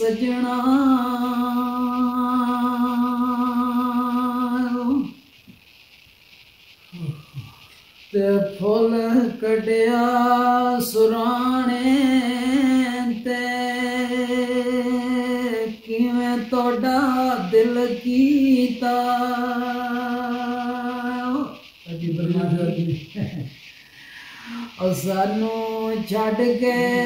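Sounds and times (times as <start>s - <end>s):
man singing unaccompanied: 0.0s - 5.2s, 8.1s - 23.2s, 24.7s - 27.0s
man breathing: 23.8s - 24.8s.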